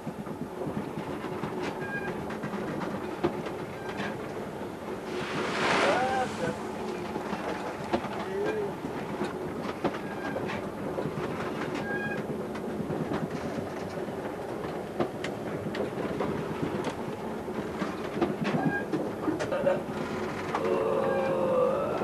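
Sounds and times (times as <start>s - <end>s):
boat engine rumbling: 2.2s - 11.8s.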